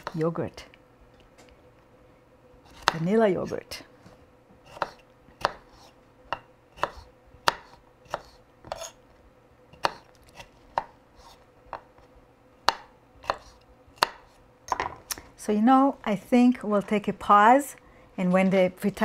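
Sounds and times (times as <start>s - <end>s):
knife chopping on wooden board: 2.7s - 3.0s, 4.6s - 9.0s, 9.8s - 11.9s, 12.6s - 15.0s.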